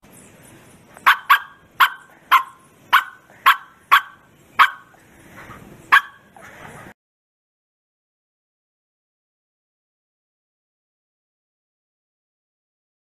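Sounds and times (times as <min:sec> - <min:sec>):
dog barking: 0:01.0 - 0:05.0, 0:05.9 - 0:06.4.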